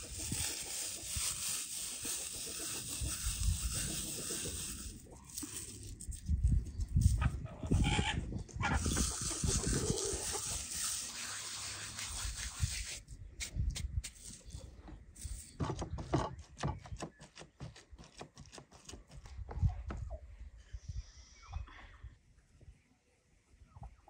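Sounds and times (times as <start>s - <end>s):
dry herbs rubbed between palms: 0.0s - 7.9s, 8.6s - 15.6s.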